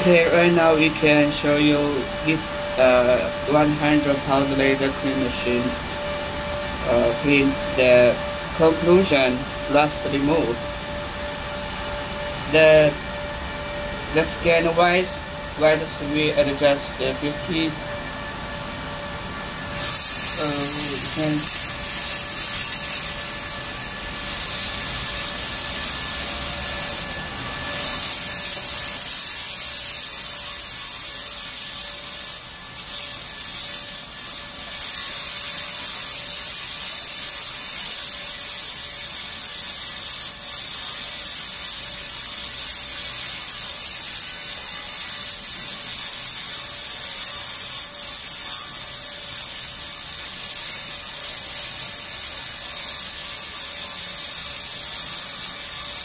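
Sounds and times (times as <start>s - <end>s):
laser cleaner high-pitched hiss: 6.8s - 10.6s, 19.6s - 56.0s.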